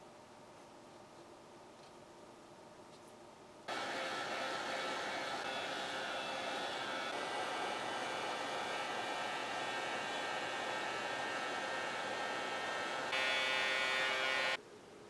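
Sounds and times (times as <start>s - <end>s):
faint fan whine: 0.0s - 15.0s
hot air blower hiss: 3.7s - 14.6s.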